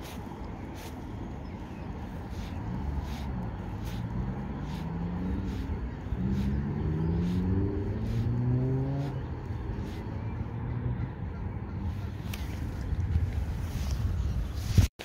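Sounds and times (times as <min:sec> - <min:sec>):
motor engine speeding up: 0:02.3 - 0:12.0.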